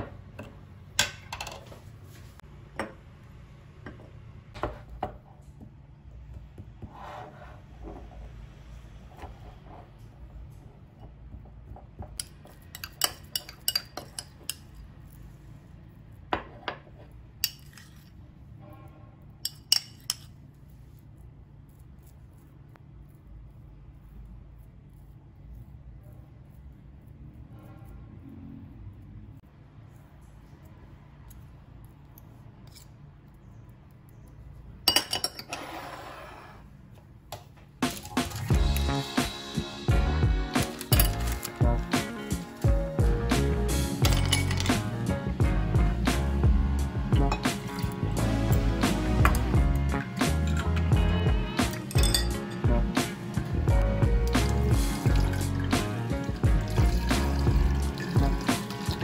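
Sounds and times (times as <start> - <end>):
spoon clinking on glass jar: 12.2 - 14.7, 44.0 - 44.7, 51.8 - 52.6
metal clattering on ceramic: 44.0 - 44.7, 51.7 - 52.6.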